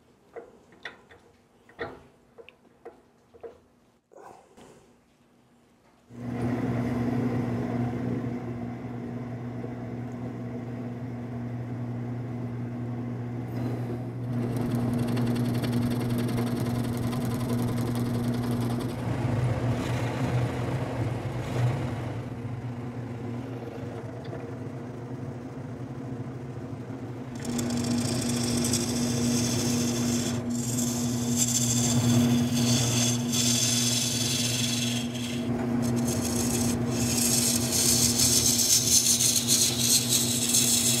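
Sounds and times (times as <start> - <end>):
lathe motor hum: 6.2 - 41.0
tool scraping spinning wood: 14.2 - 22.2, 27.3 - 41.0.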